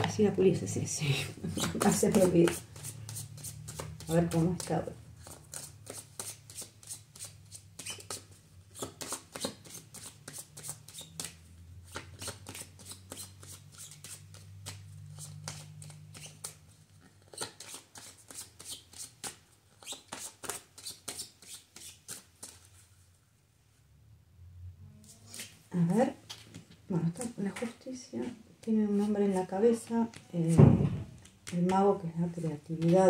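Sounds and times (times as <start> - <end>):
cards being shuffled: 1.4 - 22.8, 25.0 - 25.6.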